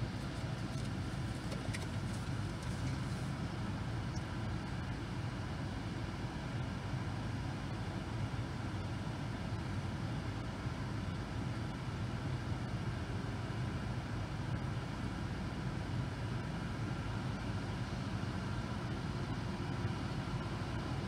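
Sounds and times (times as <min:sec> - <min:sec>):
car engine idling: 0:00.0 - 0:04.2.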